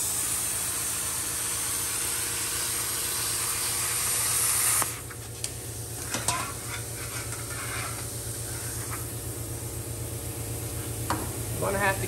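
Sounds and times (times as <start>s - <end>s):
plasma cutter hissing: 0.0s - 5.1s.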